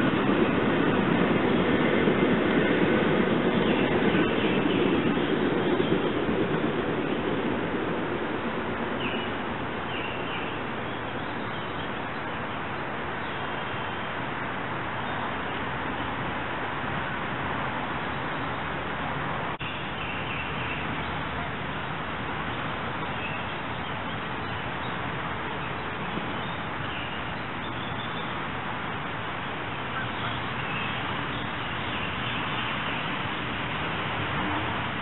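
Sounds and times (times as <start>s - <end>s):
creek water rushing: 0.0s - 35.0s
bird calls: 9.0s - 12.0s.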